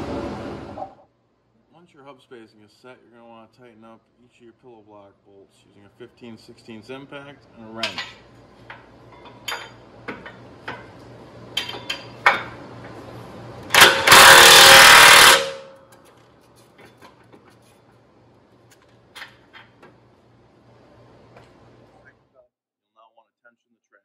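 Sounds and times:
cordless impact wrench hammering: 0:13.7 - 0:15.8.

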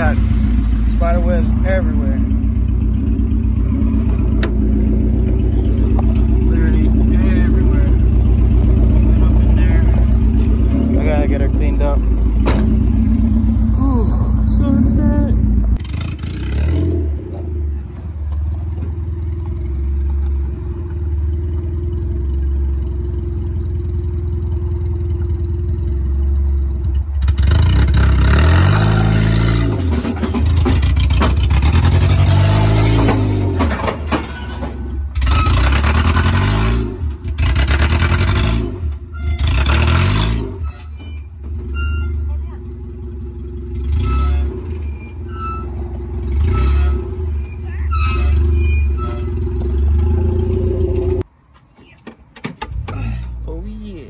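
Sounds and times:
car engine idling and revving: 0:00.0 - 0:54.0.

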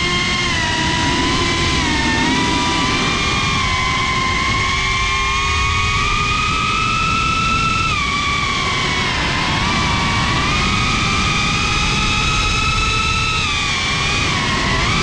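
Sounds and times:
drone motors whining: 0:00.0 - 0:15.0
wind noise: 0:00.0 - 0:15.0.

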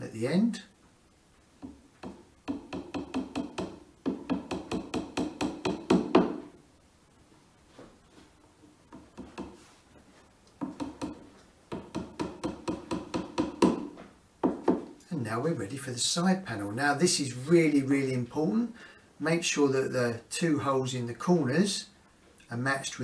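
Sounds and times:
hammer tapping wooden dowels: 0:01.6 - 0:06.5, 0:08.9 - 0:09.6, 0:10.5 - 0:15.0.

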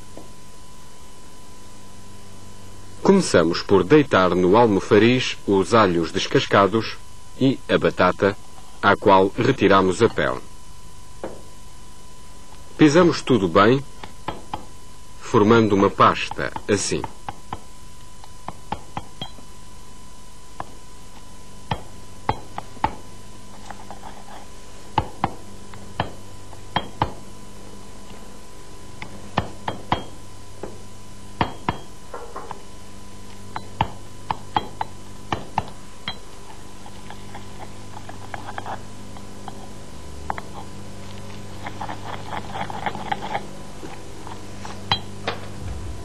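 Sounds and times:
faint steady hum: 0:00.0 - 0:46.0
pestle knocking in mortar: 0:14.1 - 0:14.7, 0:18.4 - 0:19.4, 0:24.9 - 0:27.2, 0:29.3 - 0:30.8, 0:31.4 - 0:32.6, 0:33.5 - 0:36.2
pestle grinding paste: 0:33.5 - 0:44.0.

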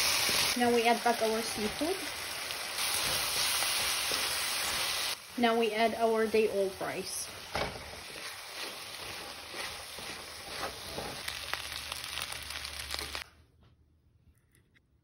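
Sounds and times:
fried rice sizzling in pan: 0:00.0 - 0:13.2
wooden spatula scraping pan: 0:07.0 - 0:11.3.

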